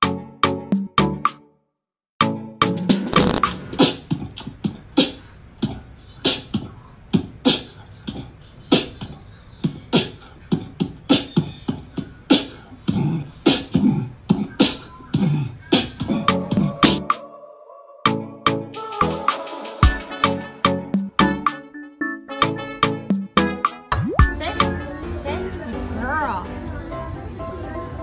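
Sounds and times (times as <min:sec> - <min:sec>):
beatbox vocal percussion: 0:03.1 - 0:17.2, 0:18.1 - 0:21.6, 0:23.3 - 0:24.8.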